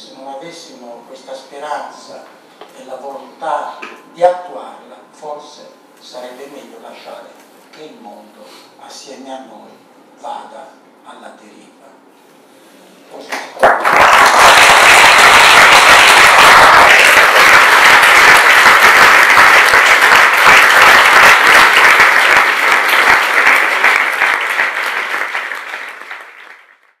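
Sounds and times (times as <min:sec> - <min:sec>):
audience applauding: 0:13.3 - 0:27.0.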